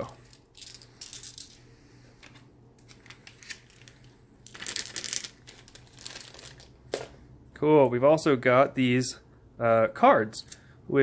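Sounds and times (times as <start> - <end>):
plastic bag crinkling: 2.8 - 6.9
dice clicking: 4.4 - 5.6.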